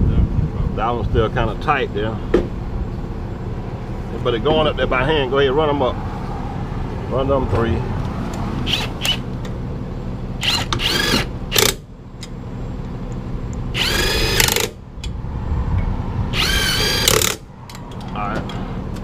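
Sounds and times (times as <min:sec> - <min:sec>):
impact wrench whining: 0:08.6 - 0:09.3, 0:10.4 - 0:11.9, 0:13.7 - 0:14.8, 0:16.3 - 0:17.5.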